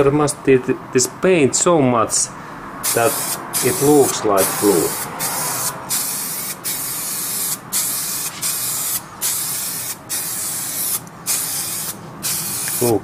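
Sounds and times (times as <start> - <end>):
spray paint can hissing: 2.9 - 13.0.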